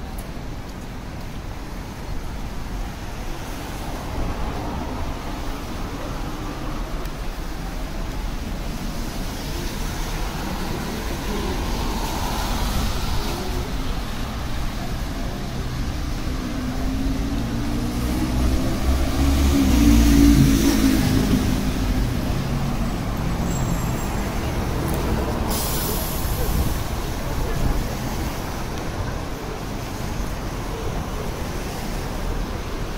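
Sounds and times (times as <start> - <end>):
low traffic rumble: 0.0 - 32.9
vehicle engine passing close: 16.3 - 26.4.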